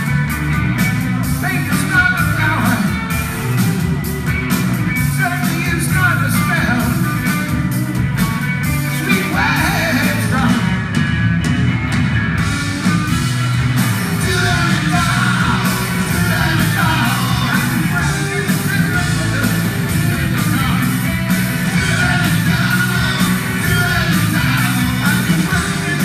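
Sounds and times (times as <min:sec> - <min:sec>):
drums: 0:00.0 - 0:26.0
electric guitars: 0:00.0 - 0:26.0
keyboard: 0:00.0 - 0:26.0
person singing: 0:09.0 - 0:10.8, 0:14.1 - 0:26.0.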